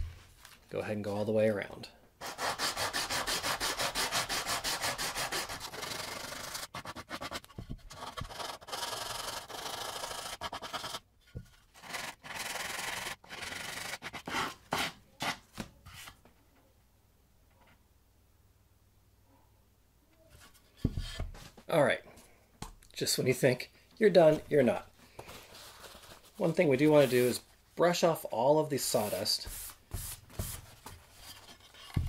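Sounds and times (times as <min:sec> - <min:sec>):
sandpaper rubbing on wood: 0:02.2 - 0:07.4, 0:28.8 - 0:30.6.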